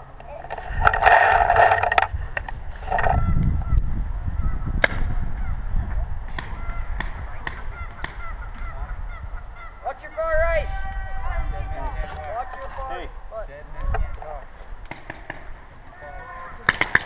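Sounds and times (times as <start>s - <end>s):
sharp crack: 4.8s - 5.1s, 14.8s - 15.5s, 16.6s - 17.0s
goose-like honking calls: 6.4s - 10.6s.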